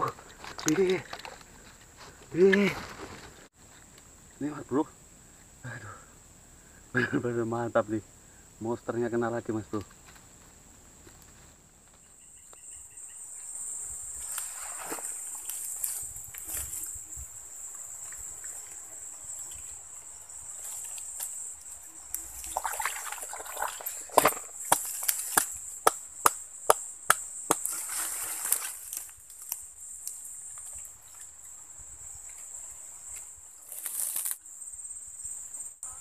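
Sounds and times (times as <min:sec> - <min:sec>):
rustling: 0:00.0 - 0:04.2, 0:13.3 - 0:25.9, 0:27.5 - 0:34.4
high-pitched insect chorus: 0:00.0 - 0:36.0.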